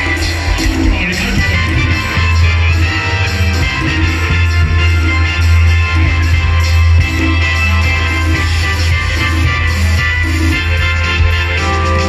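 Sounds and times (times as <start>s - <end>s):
loud dance music with heavy bass: 0.0s - 12.0s.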